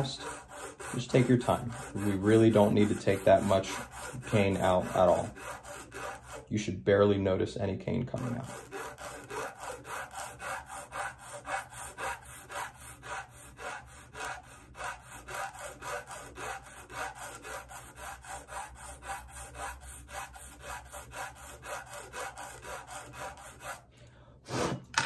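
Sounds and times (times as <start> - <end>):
file rasping on reed cane: 0.0 - 6.5, 8.1 - 23.9.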